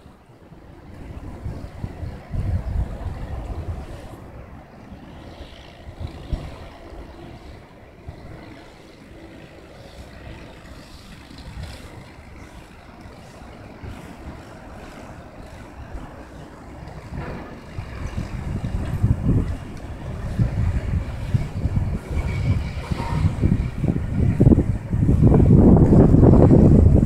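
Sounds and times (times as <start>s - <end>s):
river traffic rumble: 0.0s - 27.0s
wind on microphone: 0.0s - 27.0s.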